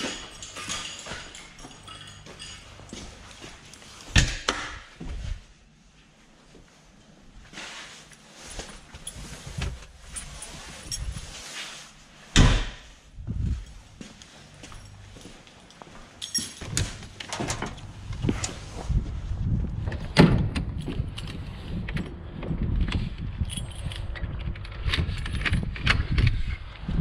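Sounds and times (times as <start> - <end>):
keys jangling: 0.0 - 4.2, 8.5 - 11.4, 13.5 - 18.7, 23.2 - 25.8
low rumble: 13.0 - 14.0, 17.0 - 27.0.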